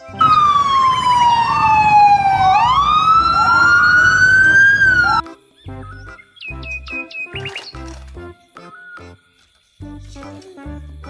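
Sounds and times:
police car sirens wailing: 0.0s - 5.2s.

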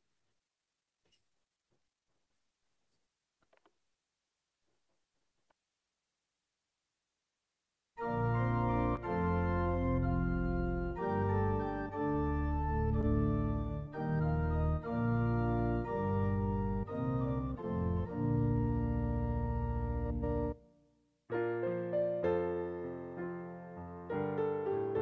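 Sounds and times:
organ playing a hymn: 8.0s - 20.6s.

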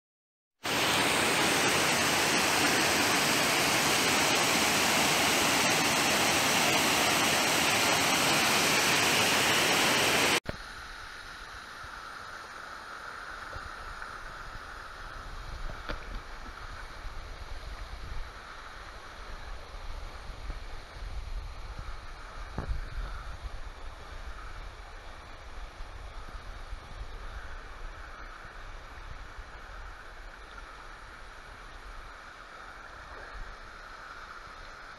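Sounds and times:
waterfall rushing: 0.6s - 10.4s.

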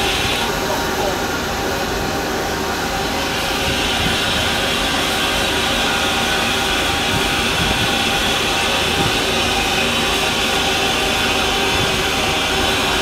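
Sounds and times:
loud steam hiss: 0.0s - 13.0s.

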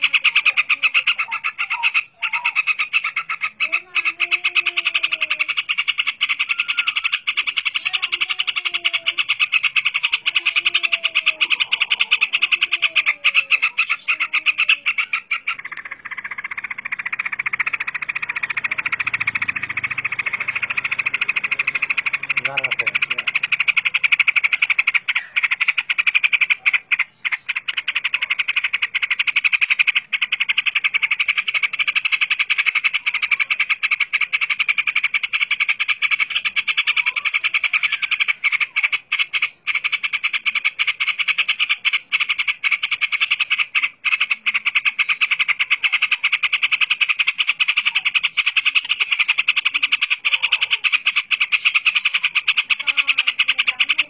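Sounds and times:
bird singing: 0.0s - 54.0s
rapidly pulsing high trill: 13.6s - 54.0s.

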